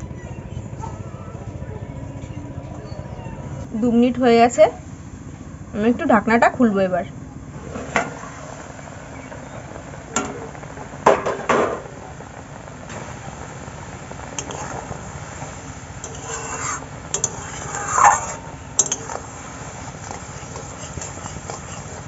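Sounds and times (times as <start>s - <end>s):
liquid bubbling: 7.4s - 22.0s
metal spatula scraping pan: 16.0s - 19.4s, 20.0s - 22.0s.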